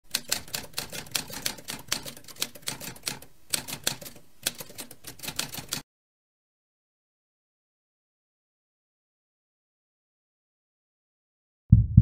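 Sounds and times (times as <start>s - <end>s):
typewriter keys clacking: 0.1s - 5.8s.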